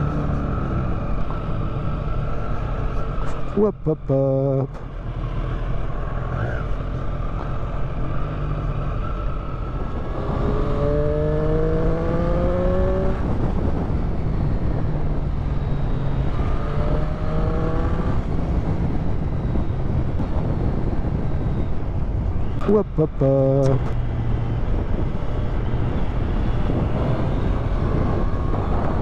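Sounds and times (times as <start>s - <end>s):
motorcycle engine accelerating: 4.9s - 21.9s.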